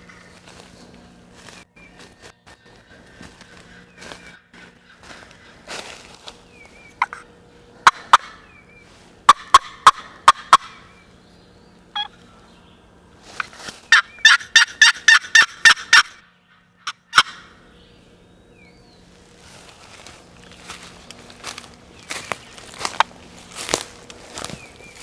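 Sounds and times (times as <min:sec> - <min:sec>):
turkey gobbling: 0:07.8 - 0:08.5, 0:09.3 - 0:10.8, 0:12.0 - 0:12.2, 0:13.9 - 0:16.2, 0:16.8 - 0:17.5.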